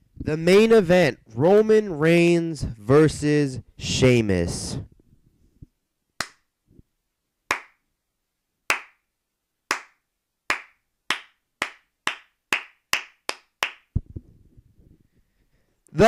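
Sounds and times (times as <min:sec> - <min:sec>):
hand claps: 0:06.2 - 0:06.5, 0:07.5 - 0:07.8, 0:08.7 - 0:09.1, 0:09.7 - 0:14.0.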